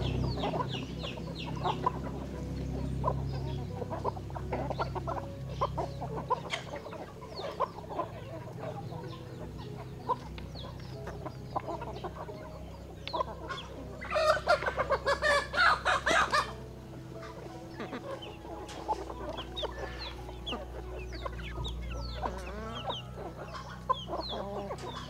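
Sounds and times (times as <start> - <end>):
chickens clucking: 0.0 - 25.0.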